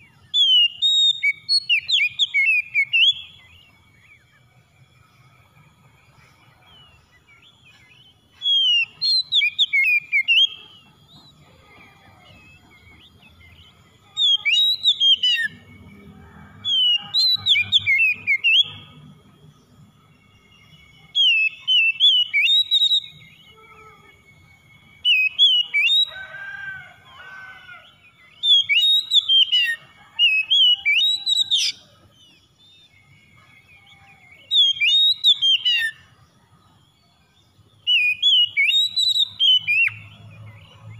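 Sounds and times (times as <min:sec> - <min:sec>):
bird singing whistled phrases: 0:00.0 - 0:03.6, 0:06.5 - 0:15.7, 0:20.1 - 0:26.2, 0:28.2 - 0:31.9, 0:32.7 - 0:36.1, 0:37.8 - 0:40.5.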